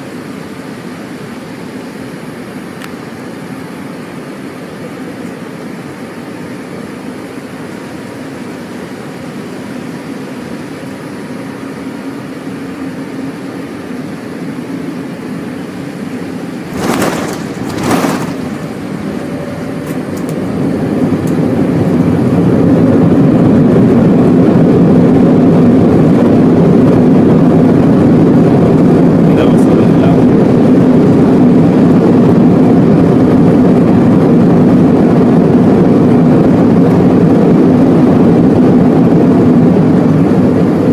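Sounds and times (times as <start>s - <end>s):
airliner cabin engine noise: 0.0s - 40.9s
engines in reverse thrust: 12.9s - 40.9s.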